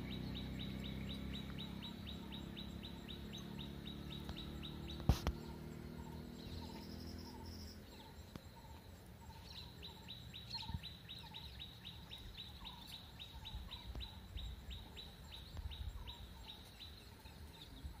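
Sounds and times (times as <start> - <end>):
lower bird notes: 0.0 - 18.0.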